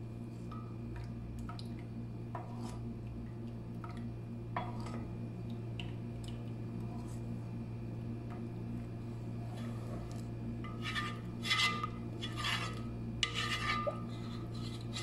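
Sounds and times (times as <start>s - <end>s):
steady low hum: 0.0s - 15.0s
wooden spoon stirring batter: 9.4s - 15.0s.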